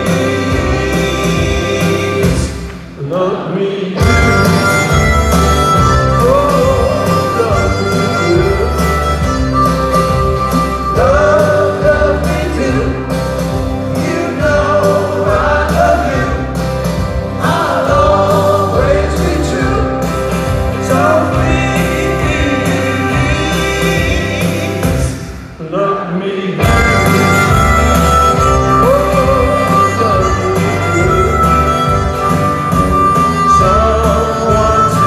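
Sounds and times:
steady drum beat: 0.0 - 3.0, 4.0 - 25.2, 26.6 - 35.0
man singing: 0.0 - 4.7, 5.8 - 9.1, 10.7 - 13.2, 13.9 - 16.6, 17.4 - 27.6, 28.2 - 35.0
strummed acoustic guitar: 4.0 - 25.4, 26.6 - 35.0.

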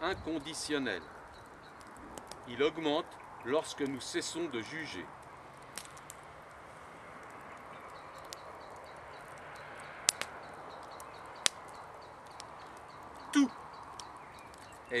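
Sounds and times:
faint steady background noise: 0.0 - 15.0
fire popping: 0.0 - 15.0
wood fire crackling: 0.0 - 15.0.

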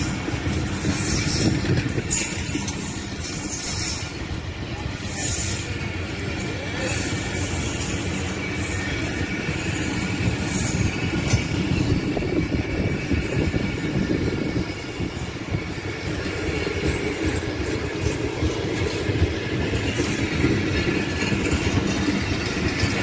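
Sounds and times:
high wheel squeals: 0.0 - 23.0
train wheels rumbling on rail: 0.0 - 23.0.

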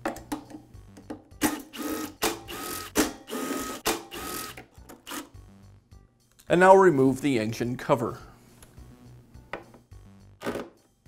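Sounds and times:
drill whining bursts: 1.7 - 4.6.

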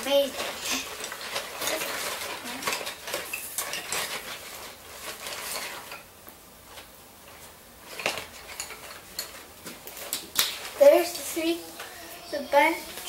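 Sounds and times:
crayons clattering in a bag: 0.0 - 6.1, 6.7 - 13.0.

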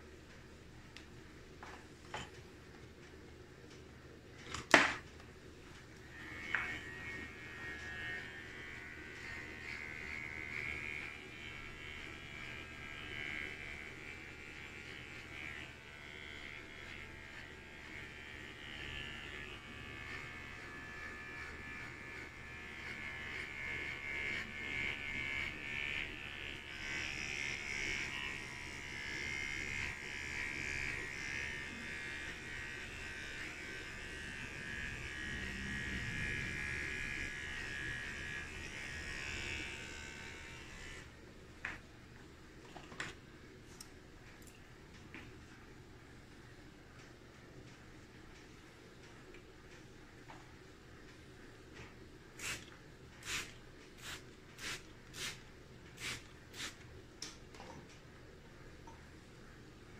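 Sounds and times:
electric hair clippers buzzing: 5.8 - 41.8, 52.4 - 55.4, 56.0 - 56.8.

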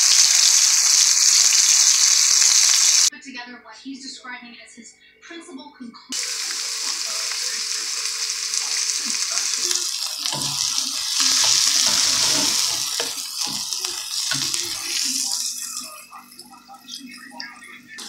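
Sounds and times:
onion sizzling in oil: 0.0 - 3.1, 6.2 - 16.5
spatula stirring in pan: 8.3 - 16.6.

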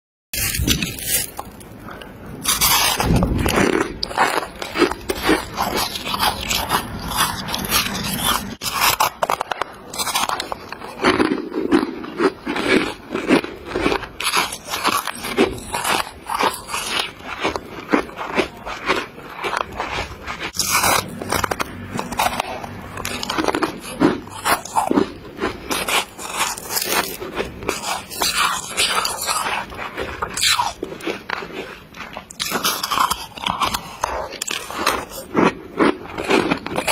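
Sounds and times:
person crunching frost: 0.4 - 36.9.

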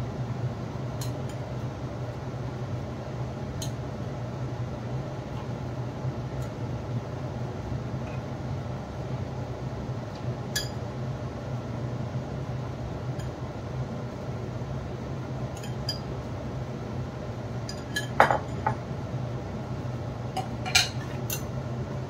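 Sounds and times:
room fan humming: 0.0 - 22.0
dishes and spoon clinking: 17.7 - 18.8, 20.4 - 21.5.

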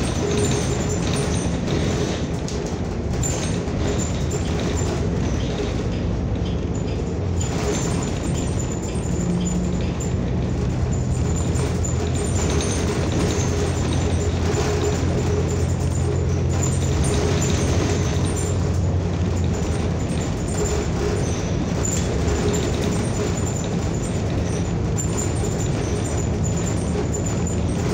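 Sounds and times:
bus engine and road drone: 0.0 - 27.9.

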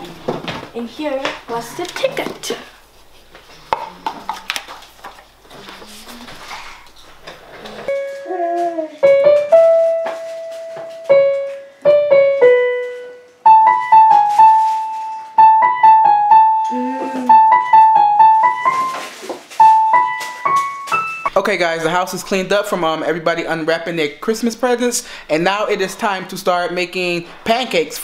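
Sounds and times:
electronic keyboard piano melody: 7.9 - 19.0, 19.6 - 21.3.

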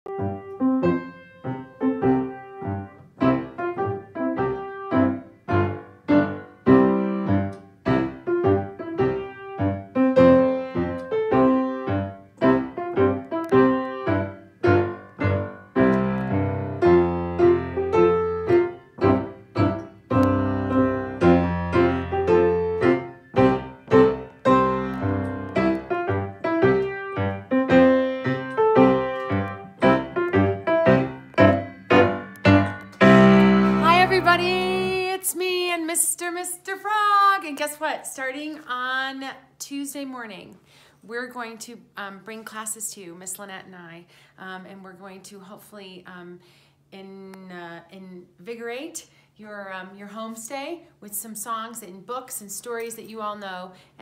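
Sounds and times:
piano playing simple tune: 0.0 - 35.1
low piano bass notes: 0.1 - 35.1.

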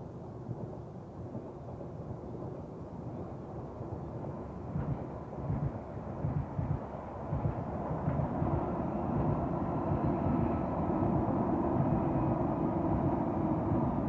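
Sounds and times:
distant train rumble: 0.0 - 14.0
steady hum: 4.6 - 14.0.

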